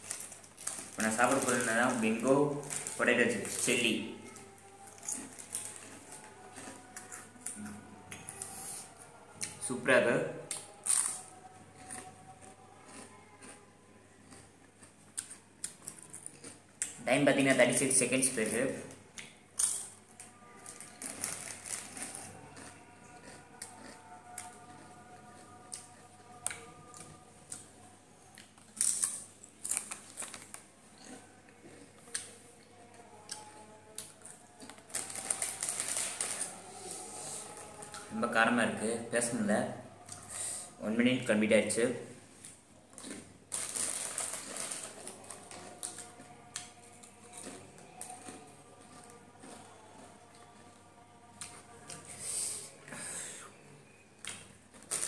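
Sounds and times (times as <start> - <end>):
foil chip packet crinkling: 0.0 - 3.8, 20.7 - 22.2, 28.8 - 30.6, 34.6 - 36.6, 43.5 - 46.1, 54.8 - 55.0
potato chips crunching: 0.0 - 3.8, 4.8 - 8.5, 10.5 - 13.6, 14.2 - 17.0, 19.2 - 27.6, 28.4 - 32.3, 33.2 - 36.6, 42.9 - 52.0.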